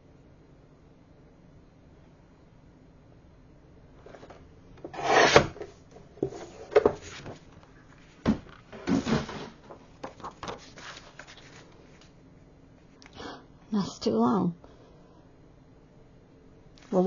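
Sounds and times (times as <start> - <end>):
paper trimmer blade cutting paper: 4.9 - 5.6
paper rustling: 8.8 - 12.2.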